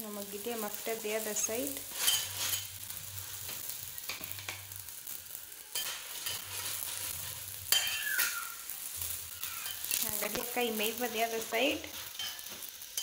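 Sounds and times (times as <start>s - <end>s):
oil sizzling in pan: 0.0s - 13.0s
spatula scraping bread and pan: 1.5s - 4.8s, 5.7s - 10.3s.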